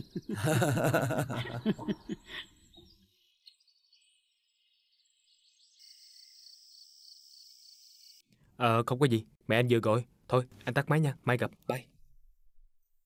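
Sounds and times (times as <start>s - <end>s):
people laughing: 0.0s - 2.5s
crickets chirping: 5.8s - 8.2s.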